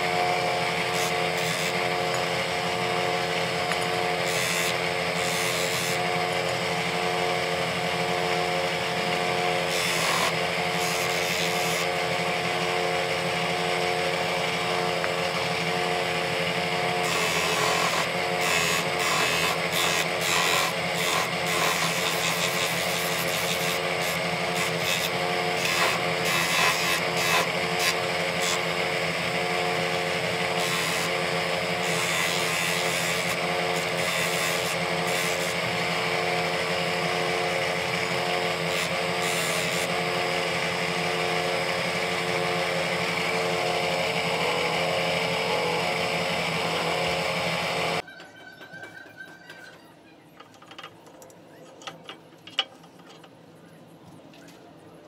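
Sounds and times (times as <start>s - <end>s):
electric sanding disc running: 0.0s - 48.0s
wood sanding: 0.8s - 2.1s, 3.9s - 6.1s, 9.2s - 12.1s, 16.4s - 36.6s, 37.6s - 40.0s.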